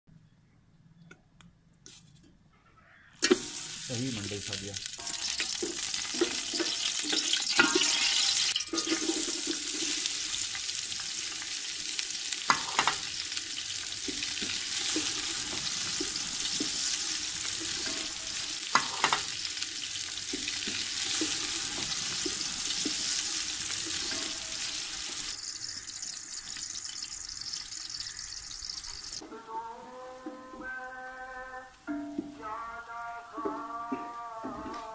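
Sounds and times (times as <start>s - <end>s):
onions frying in sizzling ghee: 3.2s - 29.2s.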